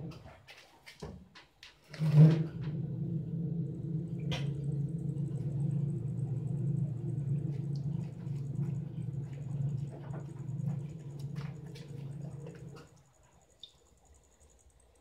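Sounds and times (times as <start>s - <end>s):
motor starting thump: 2.0s - 13.0s
electric motor humming: 2.7s - 12.9s.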